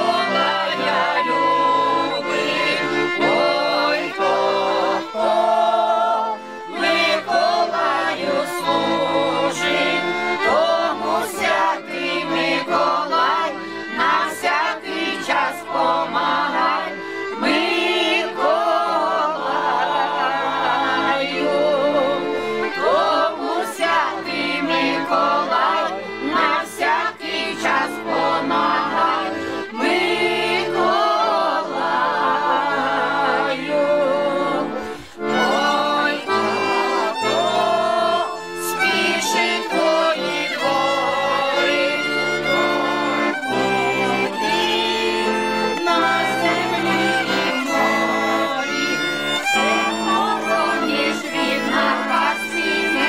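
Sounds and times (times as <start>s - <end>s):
accordion playing folk music: 0.0s - 53.0s
group singing along: 0.0s - 53.0s
violin: 0.0s - 53.0s.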